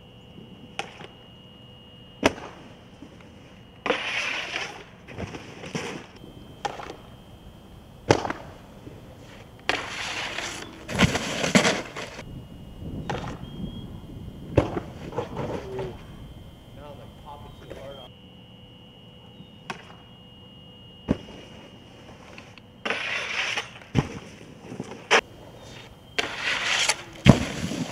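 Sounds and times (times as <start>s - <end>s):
snowboard scraping on snow: 3.9s - 6.1s, 9.2s - 12.2s, 22.9s - 27.9s.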